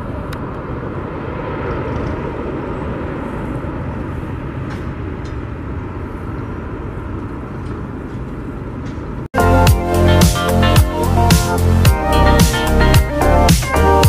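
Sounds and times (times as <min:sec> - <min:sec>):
jet engines rumbling: 0:00.0 - 0:14.0
music: 0:09.4 - 0:14.0.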